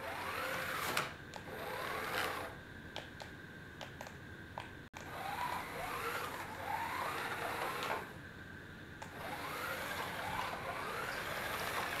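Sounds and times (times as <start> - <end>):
small electric motor whining: 0.0 - 2.6, 5.0 - 8.2, 9.0 - 12.0
motor click: 5.0 - 8.1.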